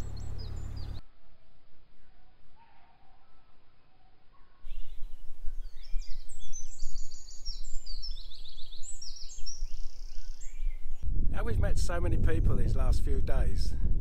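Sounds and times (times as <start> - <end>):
songbirds singing: 0.0 - 1.0, 2.0 - 11.0
wind rumble on microphone: 4.7 - 14.0.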